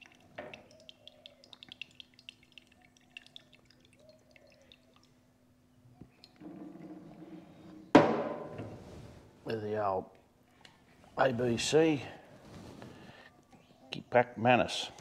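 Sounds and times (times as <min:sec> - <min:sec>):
sauce dripping into a cup: 0:00.0 - 0:05.3.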